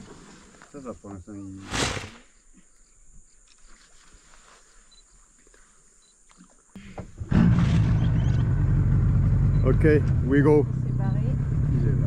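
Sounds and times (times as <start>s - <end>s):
outboard motor starting and running: 6.8s - 12.0s.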